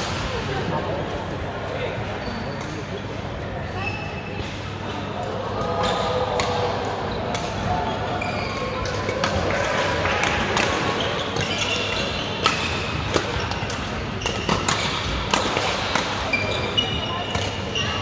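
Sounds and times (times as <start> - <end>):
rackets hitting shuttlecock: 5.6 - 7.8, 8.6 - 17.9
shoes squeaking on court: 11.0 - 13.0, 16.2 - 18.0.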